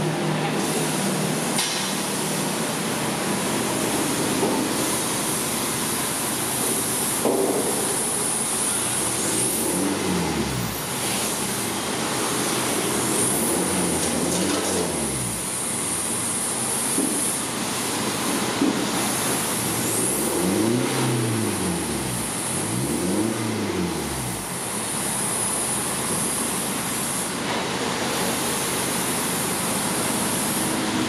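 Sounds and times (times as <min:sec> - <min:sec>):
diesel engine revving: 0:02.4 - 0:17.0, 0:19.0 - 0:26.9.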